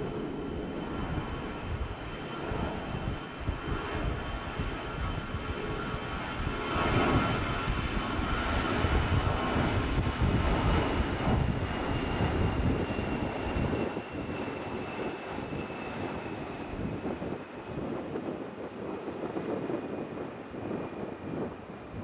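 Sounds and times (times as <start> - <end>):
airliner engines taking off: 0.0 - 22.0.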